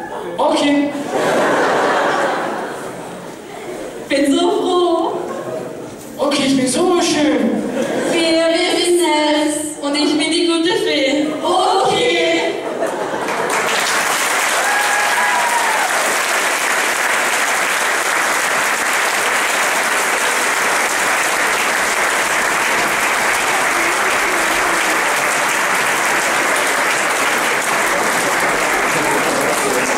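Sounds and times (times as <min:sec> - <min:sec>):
audience applauding: 0:13.1 - 0:29.9.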